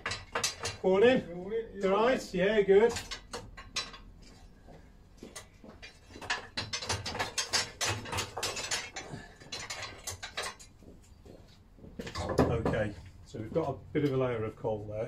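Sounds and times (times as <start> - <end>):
coal clattering onto a grate: 0.0 - 0.9, 5.8 - 10.7.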